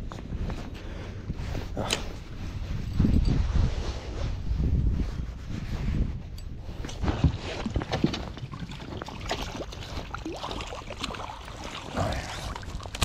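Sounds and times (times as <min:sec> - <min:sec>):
knocks and clicks on boat: 0:06.8 - 0:09.8
light water splashing: 0:07.1 - 0:13.0.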